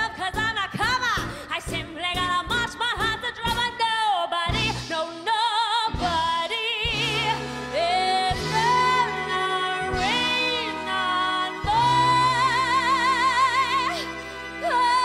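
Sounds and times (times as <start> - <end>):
woman singing a show tune: 0.0 - 15.0
orchestra playing: 6.9 - 15.0.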